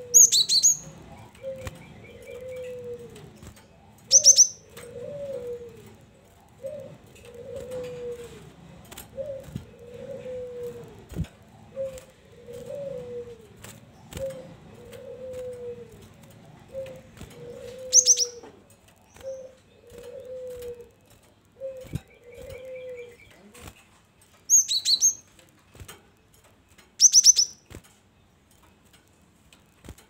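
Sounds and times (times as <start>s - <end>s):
low falling coo: 0.0s - 18.6s, 19.2s - 23.7s
bird high-pitched chirps: 0.2s - 2.7s, 4.1s - 4.6s, 17.9s - 18.4s, 24.5s - 25.2s, 27.0s - 27.6s.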